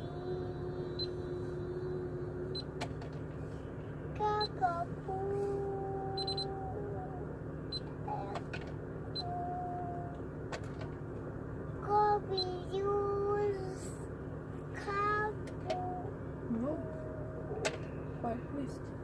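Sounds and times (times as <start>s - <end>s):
girl singing: 0.0s - 2.6s, 4.2s - 7.2s, 8.1s - 8.4s, 9.2s - 10.2s, 11.8s - 14.0s, 14.8s - 17.6s
car interior hum: 0.0s - 19.0s.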